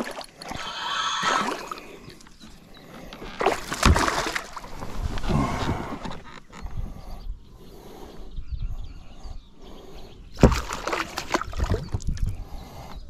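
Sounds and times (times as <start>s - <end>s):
fish thrashing and splashing: 3.2s - 5.1s, 10.4s - 12.2s.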